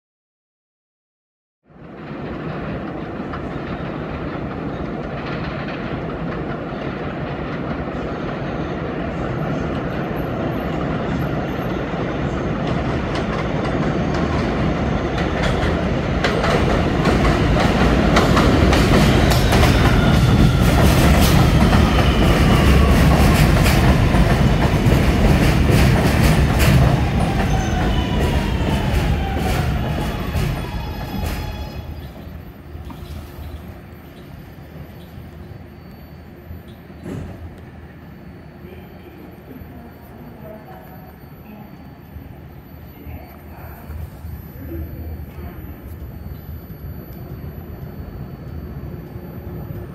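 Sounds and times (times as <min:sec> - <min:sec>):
train wheels clacking over rail joints: 0:15.1 - 0:33.6
train whine falling in pitch: 0:17.3 - 0:32.7.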